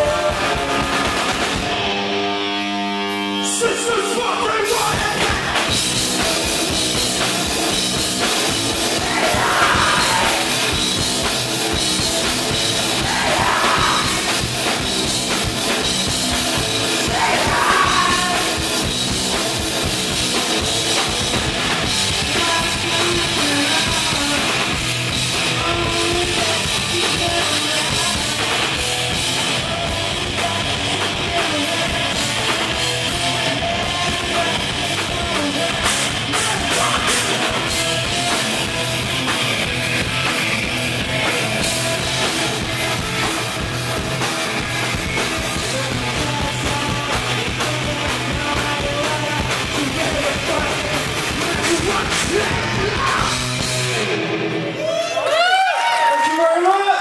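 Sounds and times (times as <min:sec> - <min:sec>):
person singing: 0:00.0 - 0:00.7, 0:08.8 - 0:10.8, 0:12.9 - 0:14.4, 0:16.9 - 0:18.8, 0:22.2 - 0:24.8, 0:25.4 - 0:28.8, 0:29.6 - 0:38.3, 0:45.5 - 0:53.4
drum kit: 0:00.0 - 0:55.0
electric guitars: 0:00.0 - 0:57.0.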